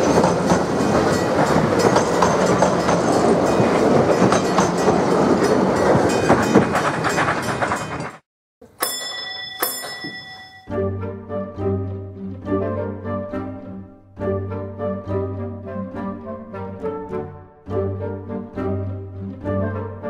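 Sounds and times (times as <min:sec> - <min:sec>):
train wheels clicking over rail joints: 0:00.0 - 0:10.4
signal bell ringing: 0:08.6 - 0:10.7.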